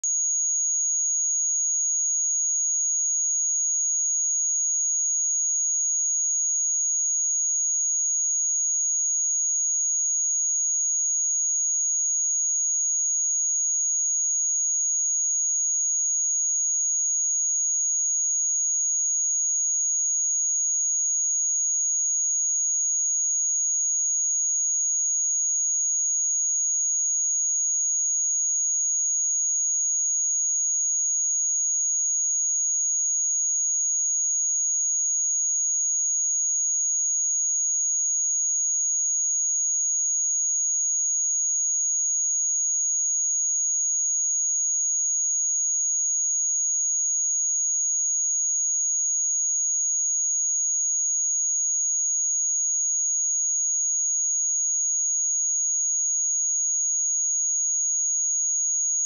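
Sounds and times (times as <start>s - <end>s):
high-pitched sine test tone: 0.0s - 2.9s.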